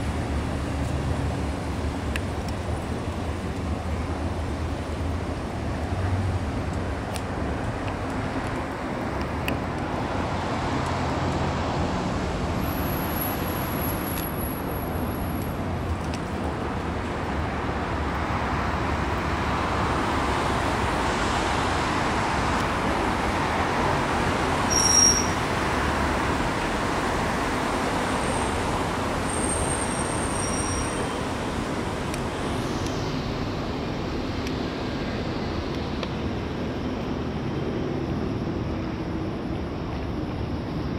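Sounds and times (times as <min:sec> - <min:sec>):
road traffic noise: 0:00.0 - 0:40.9.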